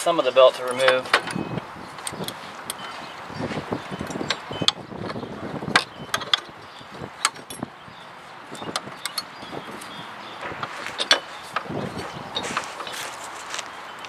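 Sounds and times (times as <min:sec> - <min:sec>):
rustling from handling: 0:09.8 - 0:13.8.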